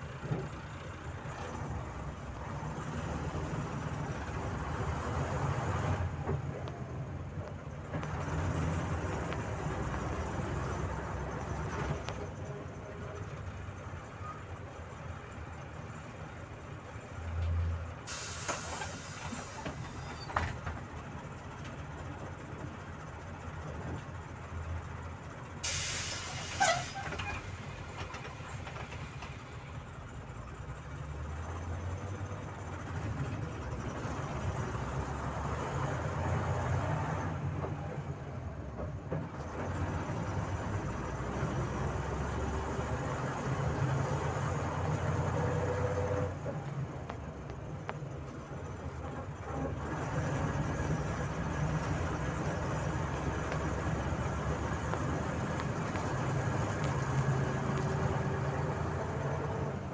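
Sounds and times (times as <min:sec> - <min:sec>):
bus engine and road rumble: 0:00.0 - 0:59.9
compressed air hisses: 0:18.1 - 0:20.1, 0:25.6 - 0:26.9.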